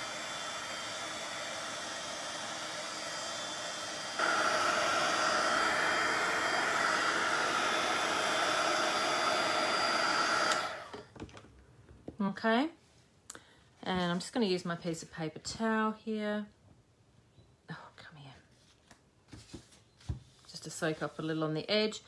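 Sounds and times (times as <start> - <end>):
heat tool fan hiss: 0.0 - 11.0.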